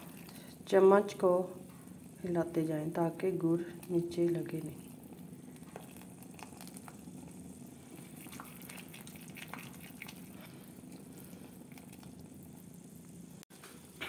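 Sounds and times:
syrup bubbling in a pan: 0.0 - 14.0
bubbles popping: 8.0 - 10.4.

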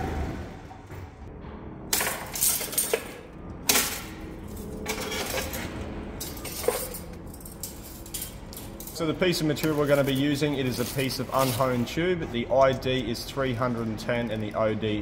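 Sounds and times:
metal objects clinking: 1.9 - 11.9.

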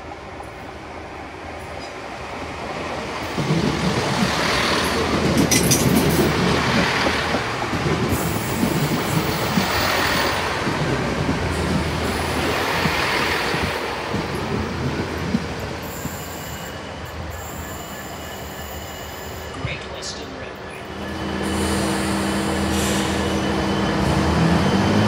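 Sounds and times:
diesel train hum: 0.0 - 25.0
train wheels clattering over joints: 3.3 - 16.4
high wheel squeal: 15.8 - 19.5, 20.9 - 25.0.

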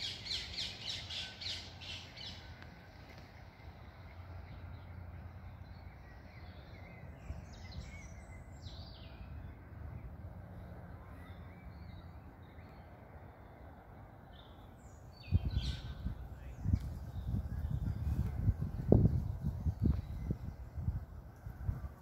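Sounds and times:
birds chirping: 0.0 - 21.1
steady low rumble: 12.2 - 22.0.

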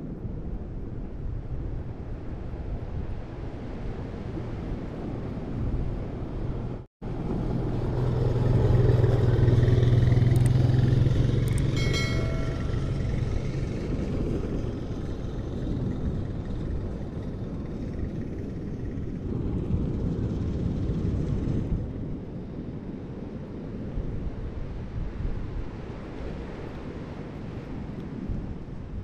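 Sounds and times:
wind noise on microphone: 0.0 - 29.0
passing vehicle engine rumble: 4.4 - 23.3.

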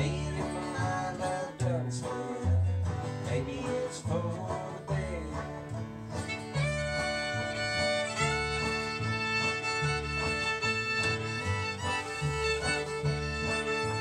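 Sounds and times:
acoustic guitar: 0.0 - 14.0
banjo: 0.0 - 14.0
fiddle melody: 0.0 - 14.0
upright bass: 0.0 - 14.0.

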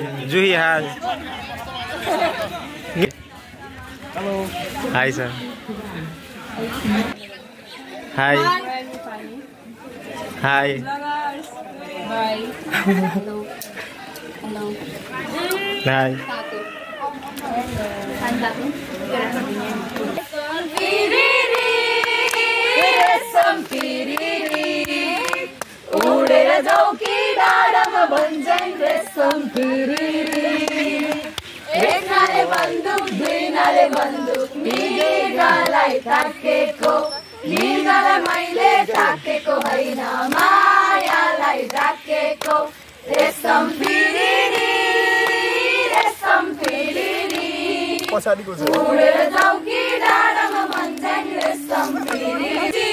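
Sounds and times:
group singing: 17.6 - 52.9
hand claps: 20.7 - 52.8.

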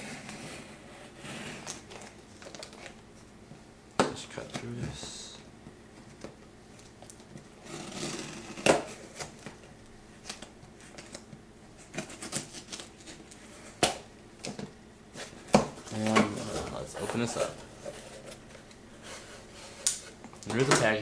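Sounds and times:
tape and cardboard scratching: 0.0 - 3.0, 7.1 - 9.6, 11.8 - 13.9.

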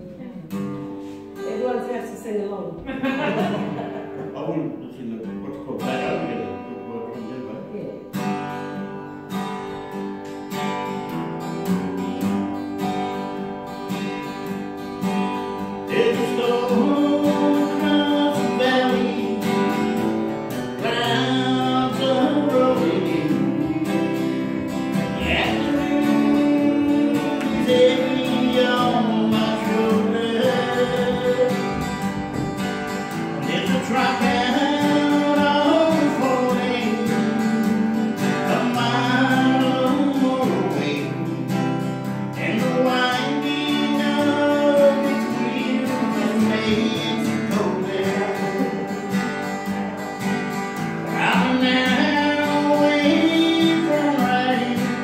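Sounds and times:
acoustic guitar strumming: 0.0 - 55.0
man singing: 5.5 - 7.4, 15.1 - 50.2, 51.0 - 55.0.

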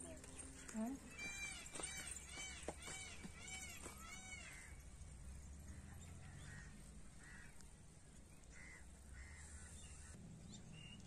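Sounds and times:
faint bird calls: 5.7 - 10.2.

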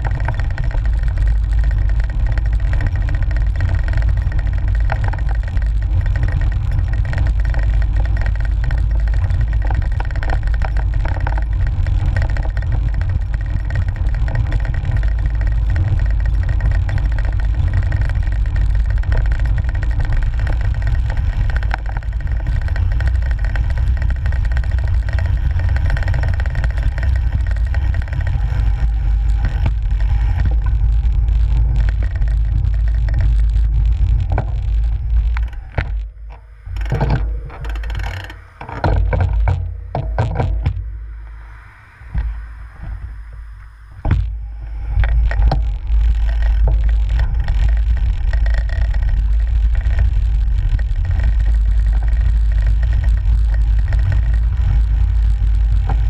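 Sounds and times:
wind and road rumble: 0.0 - 56.0.

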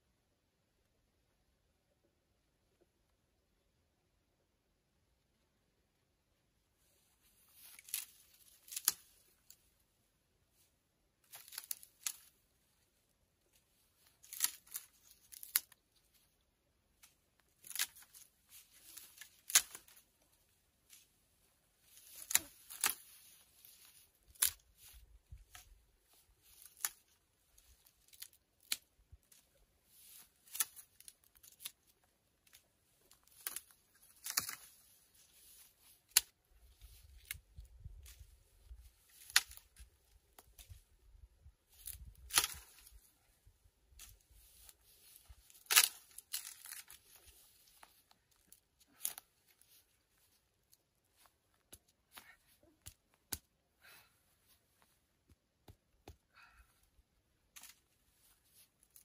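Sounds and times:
twigs rustling: 6.8 - 59.0
dry branches snapping: 7.5 - 9.5, 11.2 - 12.4, 14.0 - 15.8, 17.0 - 20.3, 21.8 - 40.9, 41.7 - 43.1, 43.9 - 50.3, 57.5 - 57.9.

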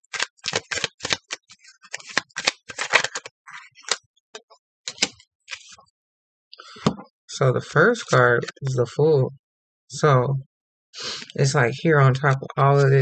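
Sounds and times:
cards snapping and rustling: 0.0 - 4.0, 4.9 - 5.8.

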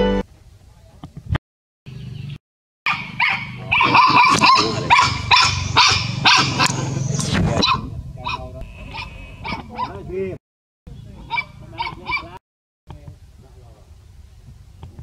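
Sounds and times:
puppy yelping and barking: 2.9 - 6.8, 7.6 - 10.0, 11.3 - 12.4.

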